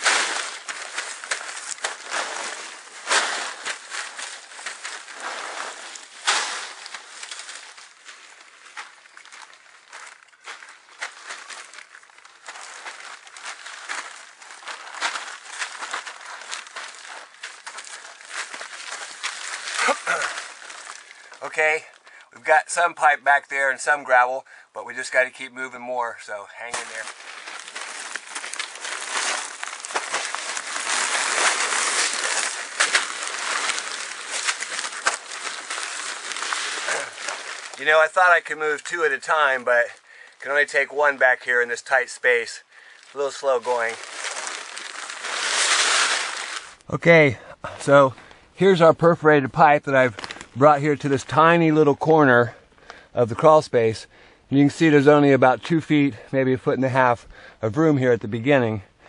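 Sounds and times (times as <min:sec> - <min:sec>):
plastic sheeting crinkling: 0:00.0 - 0:22.2, 0:26.6 - 0:46.9, 0:50.1 - 0:51.4
sharp plastic crackles: 0:00.0 - 0:22.3, 0:26.6 - 0:46.9, 0:50.1 - 0:50.6.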